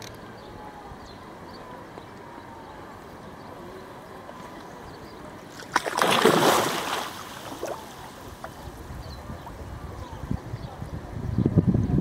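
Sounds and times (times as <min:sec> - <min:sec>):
fish thrashing and splashing: 0:05.6 - 0:08.2.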